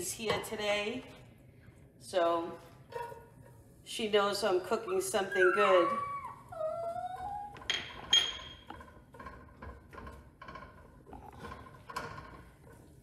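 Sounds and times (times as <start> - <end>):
small dog whining: 5.3 - 7.7.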